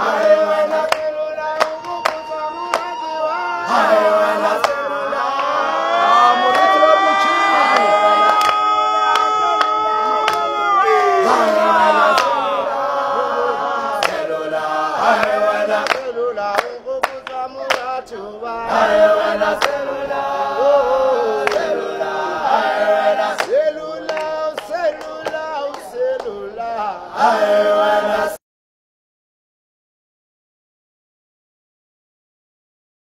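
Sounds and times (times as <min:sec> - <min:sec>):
young voices singing in harmony: 0:00.0 - 0:28.4
hand claps: 0:00.2 - 0:03.2, 0:04.6 - 0:05.6, 0:06.5 - 0:10.5, 0:12.1 - 0:12.4, 0:14.0 - 0:14.3, 0:15.1 - 0:18.2, 0:19.6 - 0:19.8, 0:21.4 - 0:21.7, 0:23.4 - 0:26.9.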